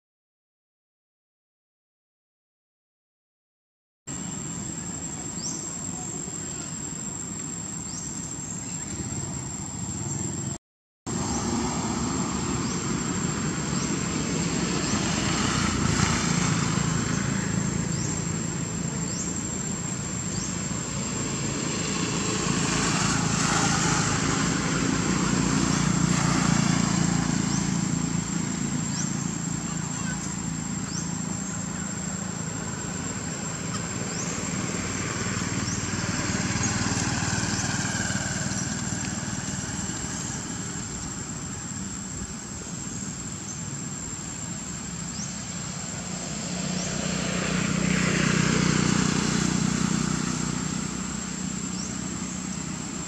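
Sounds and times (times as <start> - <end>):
high insect whine: 4.1 - 53.0
low traffic rumble: 4.1 - 53.0.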